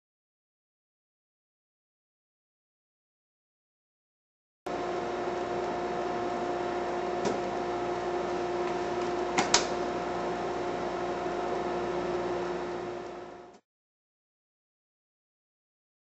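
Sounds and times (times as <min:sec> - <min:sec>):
machine humming: 0:04.7 - 0:13.6.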